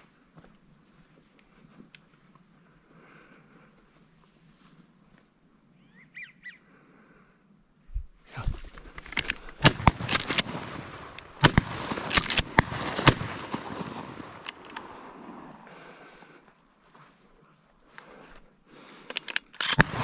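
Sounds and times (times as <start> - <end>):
shotgun blasts: 9.6 - 15.6, 19.6 - 20.0.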